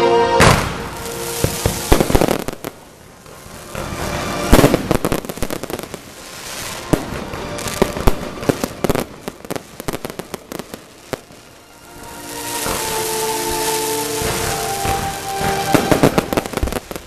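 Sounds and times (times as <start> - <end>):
firework bang: 0.4 - 2.8, 12.6 - 17.0
fireworks hissing: 0.4 - 17.0
fireworks popping and crackling: 0.4 - 17.0.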